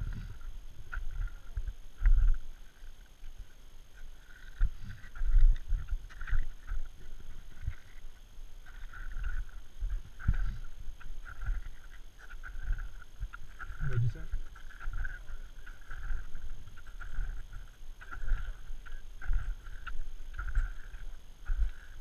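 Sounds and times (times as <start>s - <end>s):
wind buffeting microphone: 0.0s - 2.4s, 4.2s - 22.0s
boots crunching in snow: 9.9s - 22.0s.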